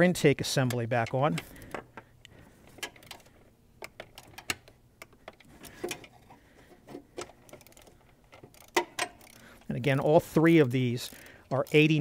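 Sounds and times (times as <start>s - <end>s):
hand ratchet clicking: 2.8s - 6.2s, 7.1s - 12.0s.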